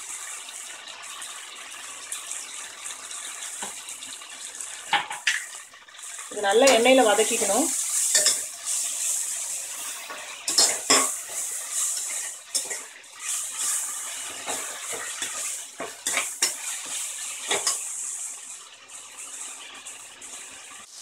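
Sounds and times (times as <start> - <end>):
food sizzling in oil: 0.0 - 21.0
steel ladle scraping pot: 10.0 - 17.8.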